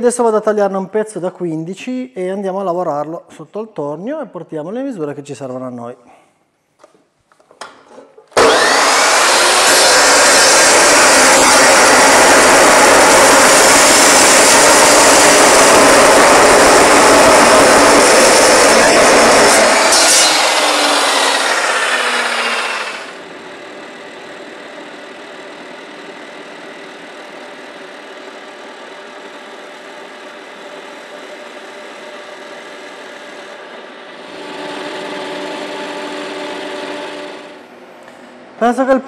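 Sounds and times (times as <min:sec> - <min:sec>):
chop saw cutting steel tube: 0:08.4 - 0:23.2, 0:34.2 - 0:37.6
metal lathe humming: 0:08.4 - 0:23.2, 0:32.8 - 0:37.6.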